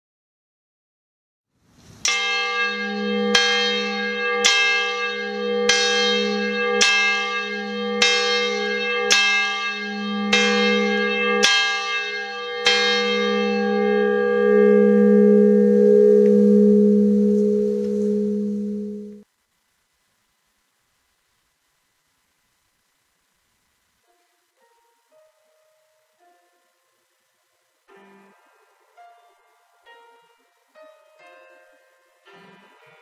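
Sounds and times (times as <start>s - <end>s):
church bell ringing: 2.1s - 19.2s.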